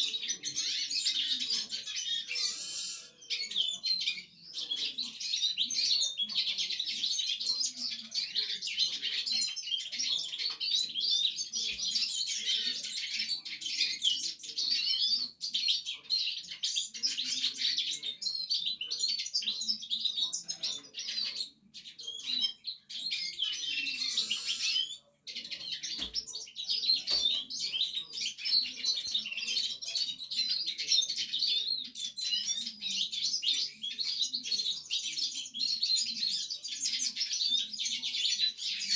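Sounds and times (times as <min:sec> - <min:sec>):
canary twittering warble: 0:22.0 - 0:30.5.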